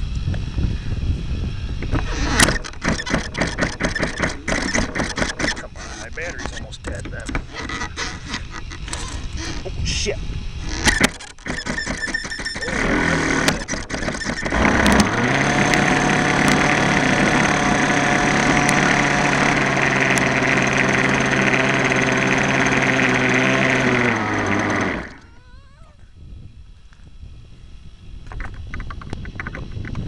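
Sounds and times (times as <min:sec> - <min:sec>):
model engine idling hum: 0:00.0 - 0:30.0
model engine cranking and sputtering: 0:01.8 - 0:25.6.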